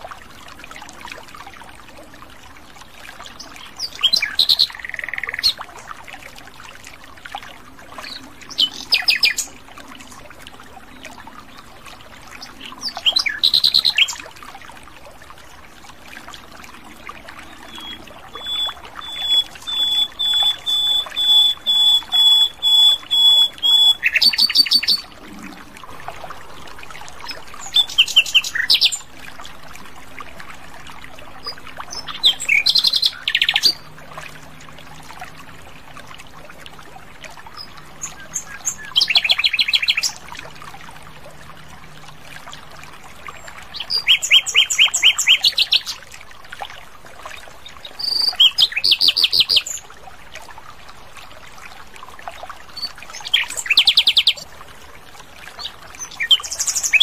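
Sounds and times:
nightingale singing: 17.5 - 25.1.

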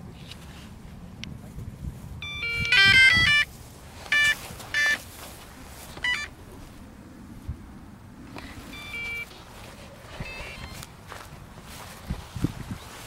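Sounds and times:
electronic startup beeps: 2.2 - 3.5, 4.1 - 5.0, 8.7 - 9.3, 10.2 - 10.8.

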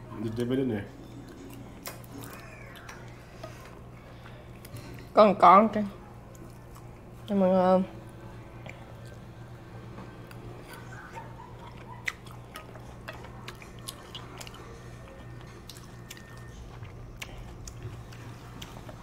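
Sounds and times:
steady low hum: 0.0 - 19.0
chewing crunches: 10.2 - 19.0.

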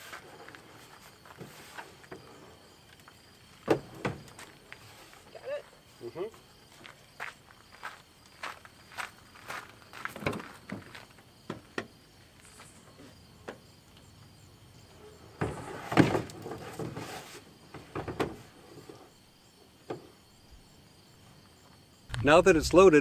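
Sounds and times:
footsteps on gravel: 6.6 - 11.2, 22.1 - 22.8.

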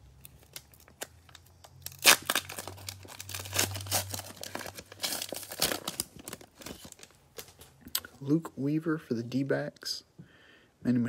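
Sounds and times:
plastic wrapper crinkling: 0.2 - 8.0
plastic wrapper ripping: 0.2 - 8.0.

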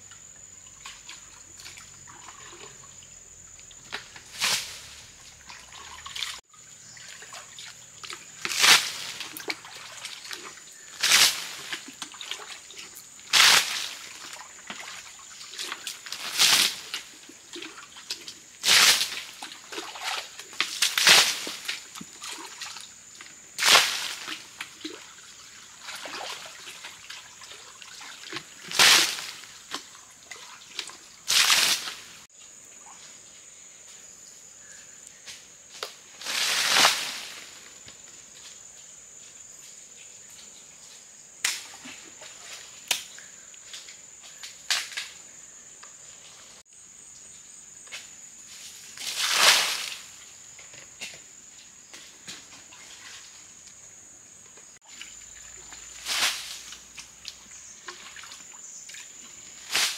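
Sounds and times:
water splashing and sloshing: 0.6 - 33.4, 39.9 - 45.2, 51.9 - 59.9.

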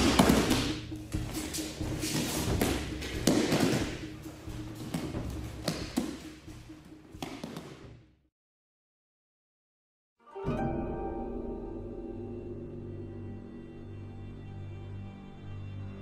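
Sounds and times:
noisy dojo background: 0.0 - 6.6.

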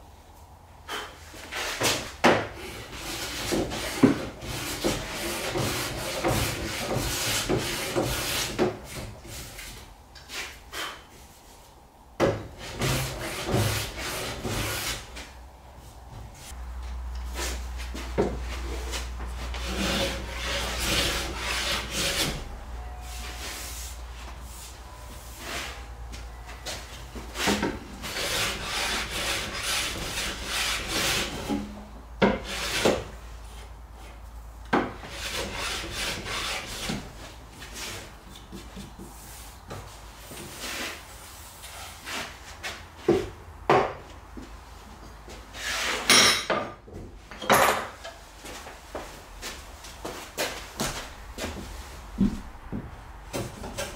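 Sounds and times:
hand plane shaving wood: 12.6 - 15.1, 18.9 - 22.4, 27.4 - 31.5, 35.0 - 37.1.

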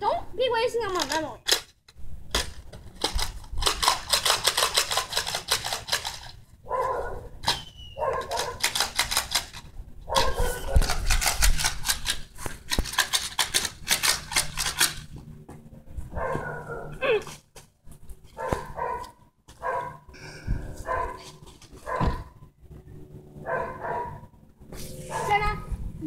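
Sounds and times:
dog barking: 6.7 - 7.3, 8.0 - 8.7, 10.1 - 10.9, 16.2 - 17.0, 18.4 - 20.0, 20.8 - 21.2, 21.8 - 22.3, 23.4 - 24.2, 25.1 - 25.4
clicking and scratching: 8.1 - 15.1.

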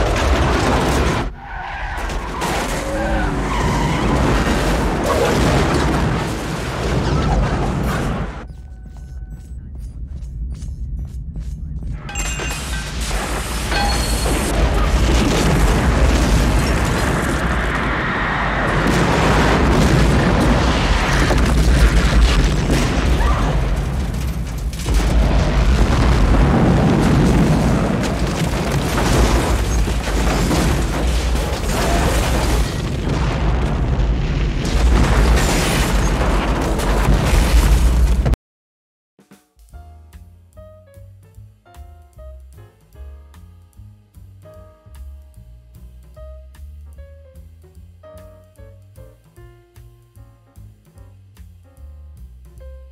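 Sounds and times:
deep rumbling explosion boom: 12.8 - 38.4
film score: 39.3 - 52.9.

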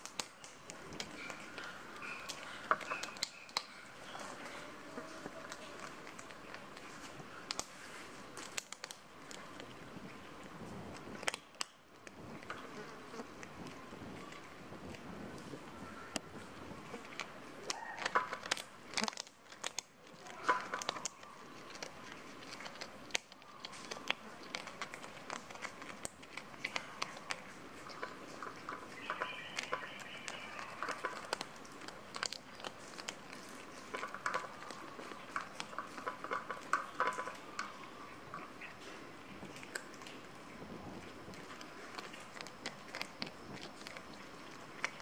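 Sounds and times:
cat crunching bones: 0.0 - 45.0.

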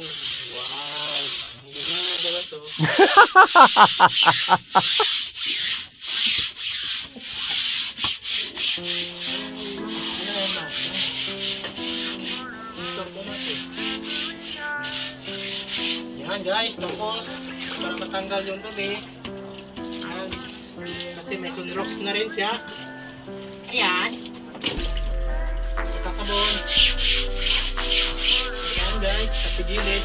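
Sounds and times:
brush scrubbing wet mattress: 0.0 - 18.9, 26.1 - 30.0.

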